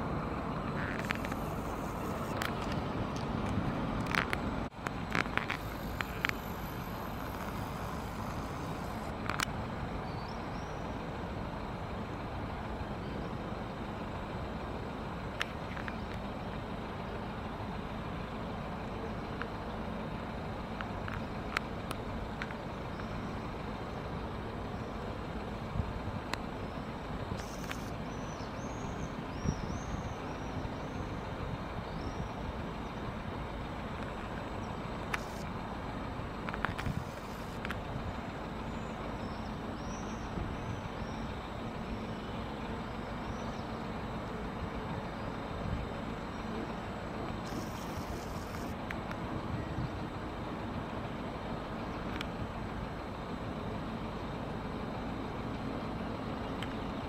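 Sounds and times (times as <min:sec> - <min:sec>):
distant road traffic: 0:00.0 - 0:57.0
hissy bursts: 0:05.5 - 0:09.1, 0:47.4 - 0:48.8.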